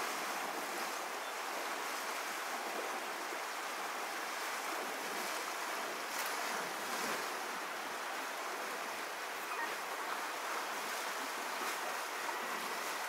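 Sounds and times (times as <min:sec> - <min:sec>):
faint splashing of wading bear: 0:00.0 - 0:13.0
river rushing over stones: 0:00.0 - 0:13.0.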